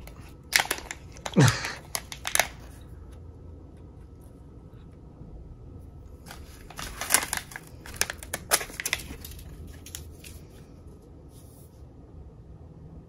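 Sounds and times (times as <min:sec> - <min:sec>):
plastic packaging crinkling: 0:00.0 - 0:02.8, 0:06.1 - 0:10.7.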